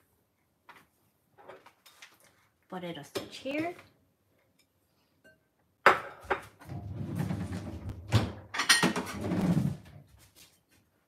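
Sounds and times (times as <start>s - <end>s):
drawer sliding open and shut: 6.6s - 10.0s.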